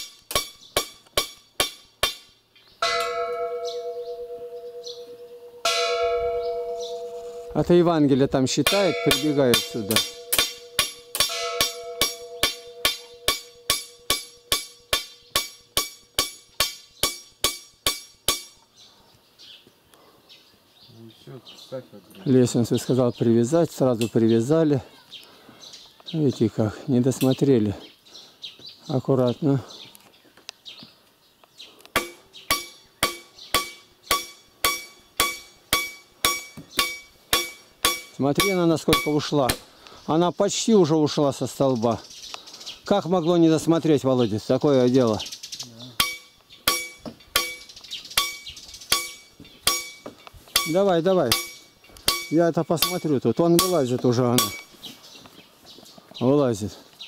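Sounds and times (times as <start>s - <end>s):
hammer blows on metal: 2.8s - 7.7s, 8.5s - 18.6s, 32.0s - 39.6s, 46.0s - 54.7s.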